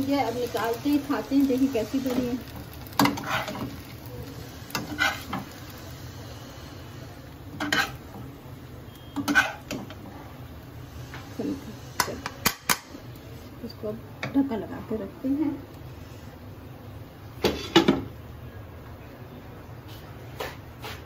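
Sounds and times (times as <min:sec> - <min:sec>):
metal spatula scraping wok: 0:00.0 - 0:08.3, 0:09.0 - 0:10.2.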